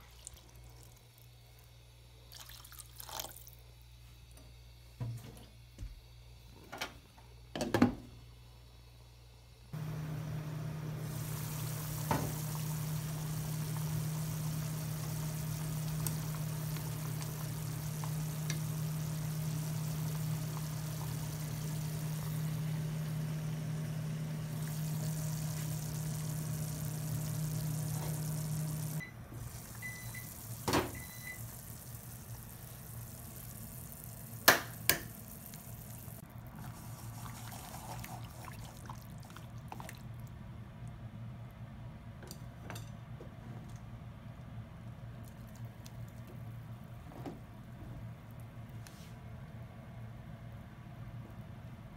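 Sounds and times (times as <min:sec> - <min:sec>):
steady low hum: 0:08.2 - 0:30.4
soup bubbling in a pot: 0:09.8 - 0:40.3.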